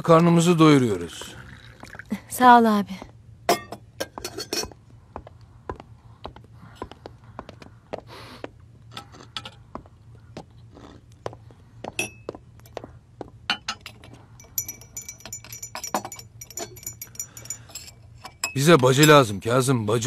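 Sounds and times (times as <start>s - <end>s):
glasses and saucers clinking: 3.5s - 4.8s, 12.0s - 12.4s, 13.5s - 19.4s
teaspoon stirring in glass: 13.8s - 19.2s.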